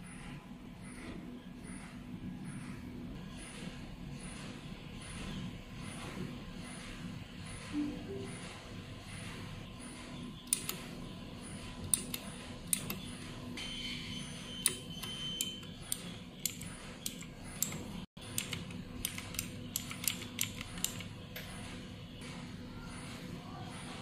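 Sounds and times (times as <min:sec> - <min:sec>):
mechanical keyboard key clicks: 0:16.4 - 0:21.0.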